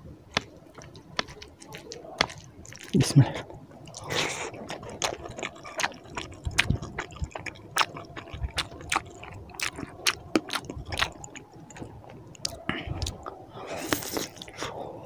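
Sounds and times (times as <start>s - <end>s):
hand squishing wet rice: 0.3s - 3.2s.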